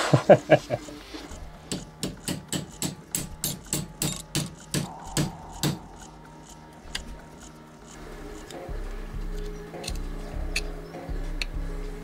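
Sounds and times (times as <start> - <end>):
hammer tapping metal punch: 1.7 - 7.2.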